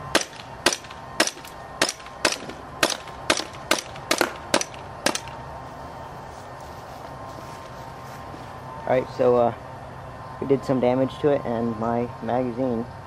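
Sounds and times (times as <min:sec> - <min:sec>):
airsoft pistol shots: 0:00.1 - 0:05.3.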